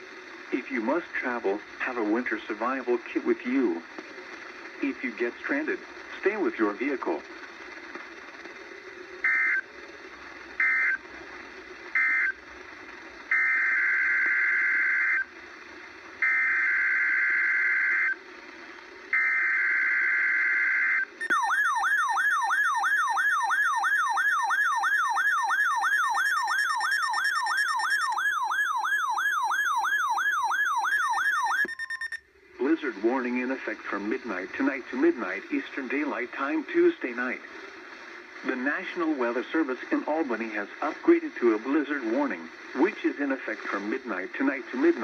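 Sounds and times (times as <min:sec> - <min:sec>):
radio static: 0:00.0 - 0:19.4, 0:31.6 - 0:45.0
data bursts: 0:30.6 - 0:32.2.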